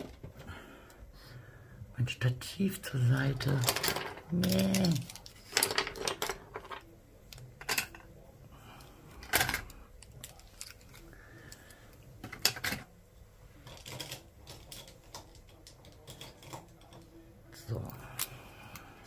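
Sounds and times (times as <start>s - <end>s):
small objects clicking and knocking: 3.3s - 8.1s, 9.1s - 12.9s, 13.6s - 17.2s.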